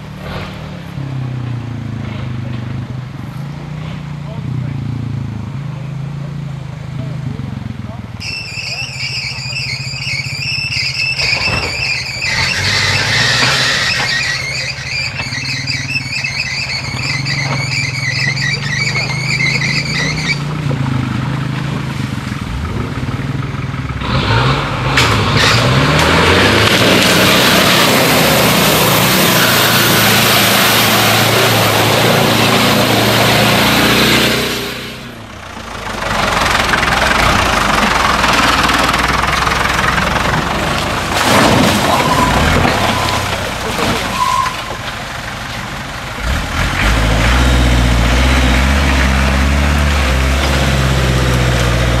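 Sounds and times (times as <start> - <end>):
engine revving: 11.2 - 16.2, 16.8 - 44.3, 46.2 - 52.0.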